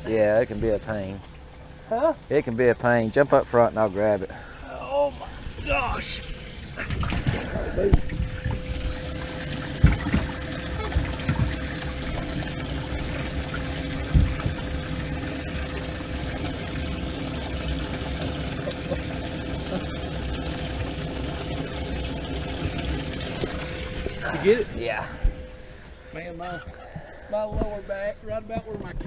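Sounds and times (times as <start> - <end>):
pump humming: 0.0 - 28.8
water trickling and pouring: 0.1 - 26.5.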